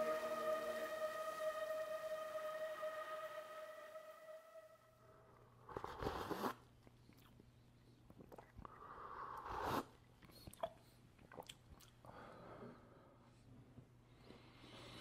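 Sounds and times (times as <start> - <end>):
low steady hum: 0.0 - 5.6.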